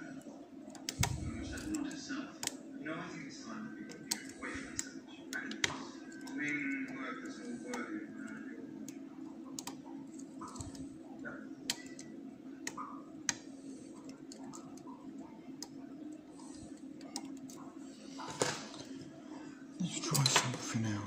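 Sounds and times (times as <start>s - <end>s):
low hum: 0.0s - 2.8s.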